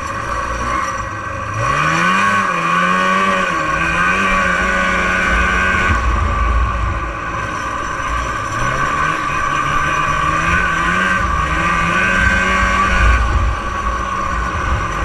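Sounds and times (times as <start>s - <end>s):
snowmobile engine running: 0.0s - 15.0s.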